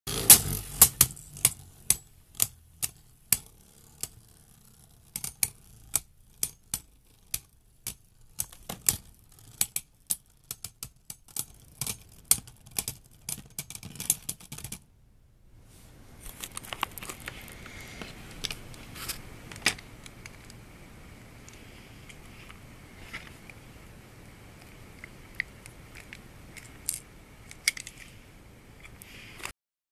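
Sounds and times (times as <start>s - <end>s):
spinning tops clacking: 0.1s - 12.4s
spinning top whirring: 0.1s - 13.2s.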